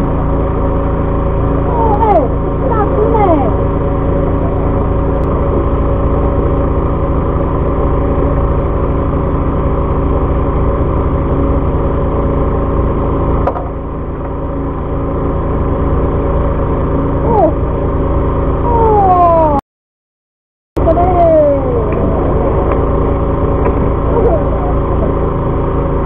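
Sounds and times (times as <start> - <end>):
boat engine droning: 0.0 - 19.6, 20.8 - 26.0
short falling whines: 17.2 - 19.6, 20.8 - 25.4.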